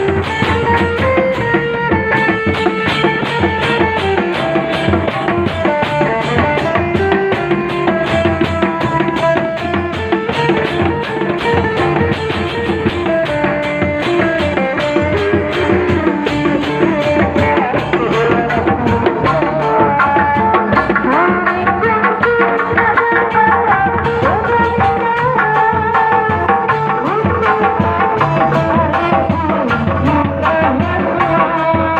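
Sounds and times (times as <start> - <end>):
drums and gong: 0.0 - 31.9
gliding melody line: 8.4 - 31.7.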